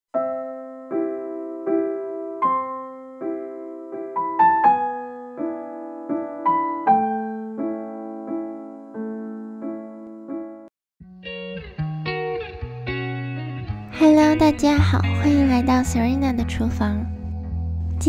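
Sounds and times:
piano chords ringing: 0.1s - 10.7s.

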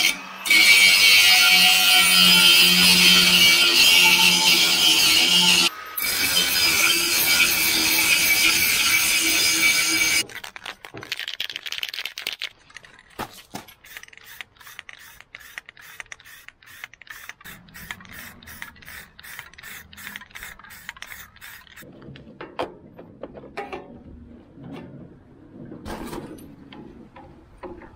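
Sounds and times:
angle grinder grinding metal: 0.0s - 10.3s, 13.9s - 21.9s.

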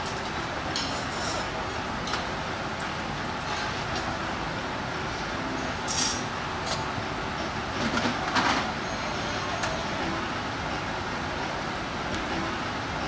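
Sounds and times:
restaurant background din: 0.0s - 4.2s, 5.4s - 7.0s.

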